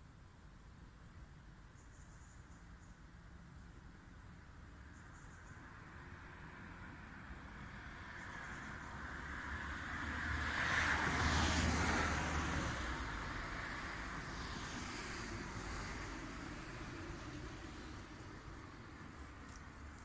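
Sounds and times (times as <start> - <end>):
car driving past: 7.7 - 18.2.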